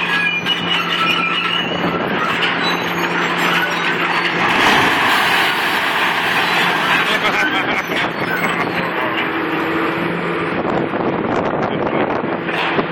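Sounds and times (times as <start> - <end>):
excavator engine hum: 0.0 - 12.9
falling steel and debris crashing: 3.2 - 8.6.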